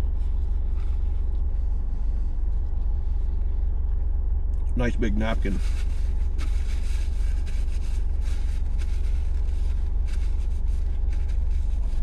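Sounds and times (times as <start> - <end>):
car engine idling: 0.0 - 12.0
paper napkin rustling: 5.4 - 12.0.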